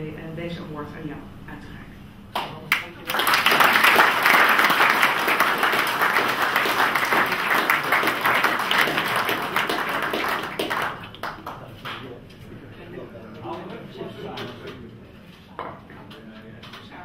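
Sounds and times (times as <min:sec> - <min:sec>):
audience applauding: 0:02.7 - 0:12.1.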